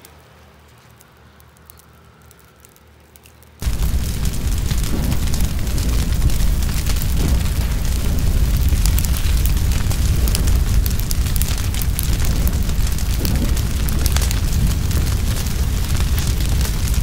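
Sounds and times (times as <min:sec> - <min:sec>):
crackles and pops of burning leaves: 0:00.0 - 0:17.0
fire burning fiercely: 0:00.9 - 0:17.0.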